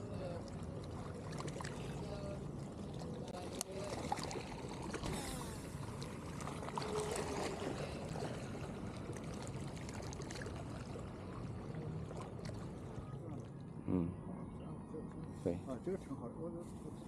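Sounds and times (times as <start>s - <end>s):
waves lapping on stony shore: 0.0s - 13.3s.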